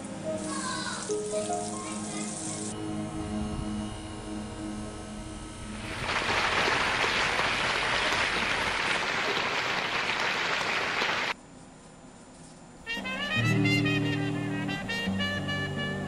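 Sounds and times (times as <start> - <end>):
recorded song held notes: 0.0 - 6.6, 12.9 - 16.0
audience applause: 5.8 - 11.4.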